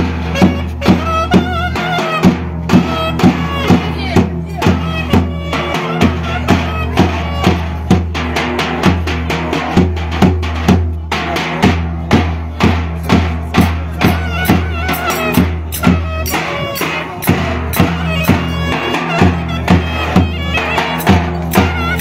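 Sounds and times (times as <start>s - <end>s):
shrill wind instrument melody: 0.0s - 7.9s, 13.9s - 22.0s
bass drum beaten with stick: 0.0s - 22.0s.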